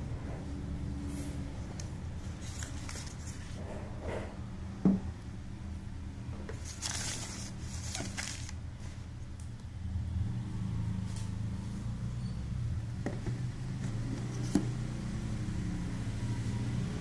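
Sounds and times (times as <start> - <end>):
tissue paper rustling: 2.3 - 3.6, 6.6 - 8.6.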